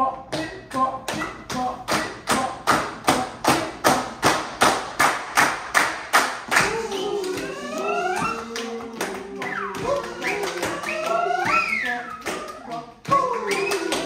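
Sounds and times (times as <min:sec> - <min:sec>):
group clapping in rhythm: 0:00.2 - 0:14.0
voices singing held notes: 0:06.5 - 0:14.0.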